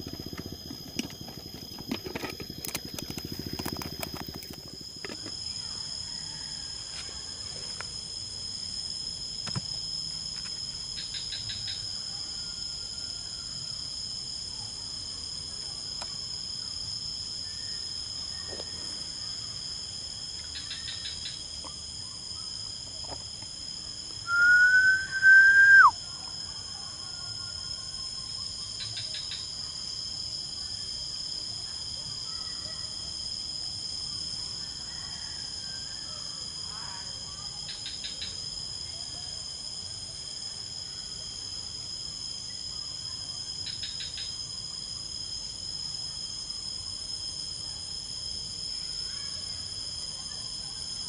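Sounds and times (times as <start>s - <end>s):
crickets chirping: 0.0s - 51.0s
rising and falling whistle: 24.2s - 26.0s.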